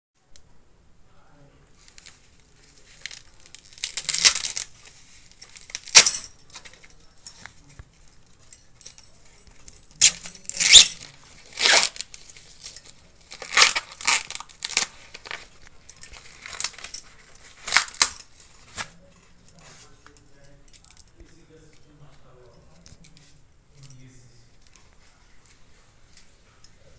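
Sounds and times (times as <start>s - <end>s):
corn husk leaves tearing: 13.3s - 15.4s.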